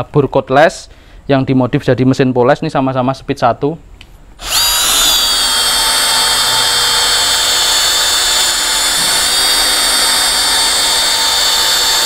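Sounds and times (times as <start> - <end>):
drill motor high whine: 4.4 - 12.0.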